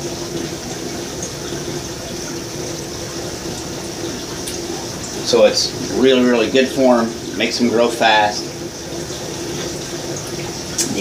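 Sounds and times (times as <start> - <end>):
running water rushing: 0.0 - 11.0.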